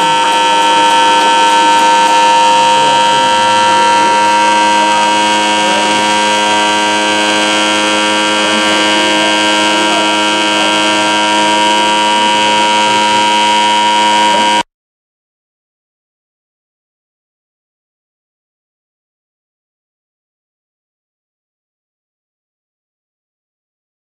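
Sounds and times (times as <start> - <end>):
gong ringing: 0.0 - 14.6.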